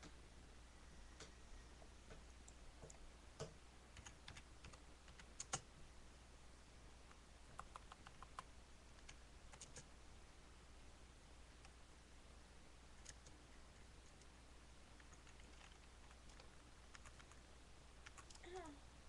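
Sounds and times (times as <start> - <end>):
small clicks and ticks: 13.0 - 13.4, 15.0 - 17.4, 18.0 - 18.7.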